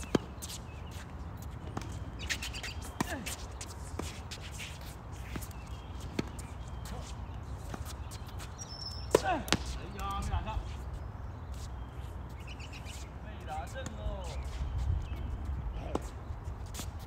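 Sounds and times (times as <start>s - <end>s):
shoe squeaks: 0.0s - 17.0s
tennis ball racket hits: 9.1s - 10.2s.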